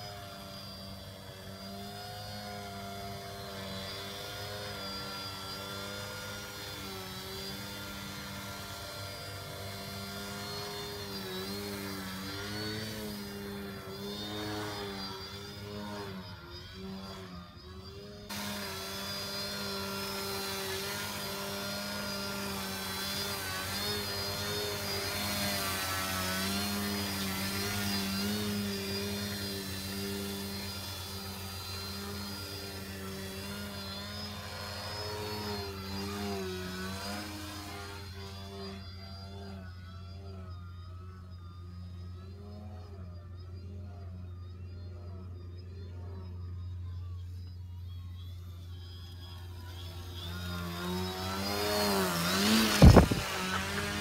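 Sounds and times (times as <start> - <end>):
model plane propeller buzzing: 0.0 - 54.0.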